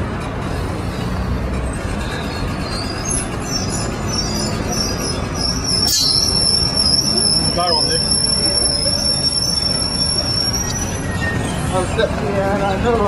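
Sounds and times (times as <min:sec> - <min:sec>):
heavy vehicle running: 0:00.0 - 0:13.0
high-pitched whine: 0:01.6 - 0:12.1.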